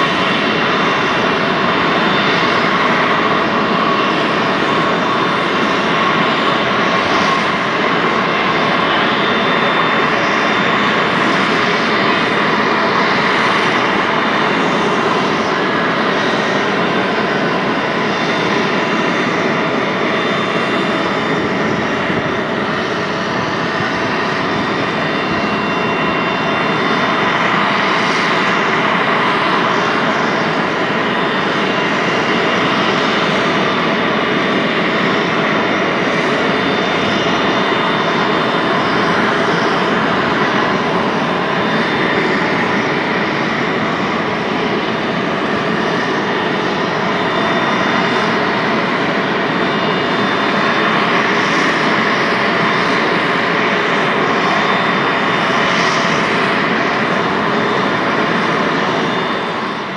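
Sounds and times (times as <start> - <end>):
jet turbine running: 0.0 - 59.9.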